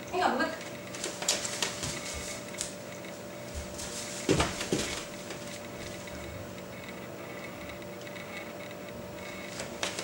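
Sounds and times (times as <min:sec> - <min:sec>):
faint steady hum: 0:00.0 - 0:10.0.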